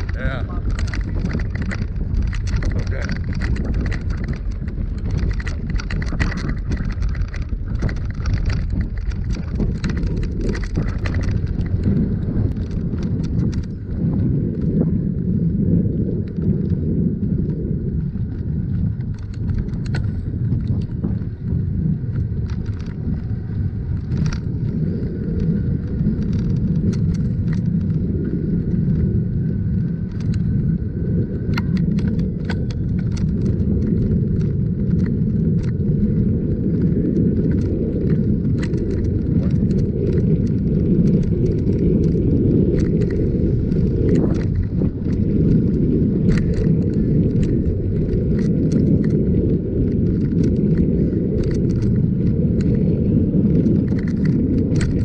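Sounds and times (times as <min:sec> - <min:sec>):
wheels clacking over wooden boards: 0:00.0 - 0:14.0, 0:30.0 - 0:55.0
bicycle tyres rumbling: 0:00.0 - 0:55.0
wind on microphone: 0:00.0 - 0:55.0.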